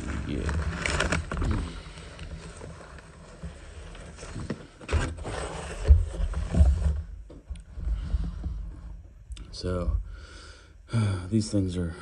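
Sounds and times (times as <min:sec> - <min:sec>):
cardboard and paper rustling: 0:00.0 - 0:07.2.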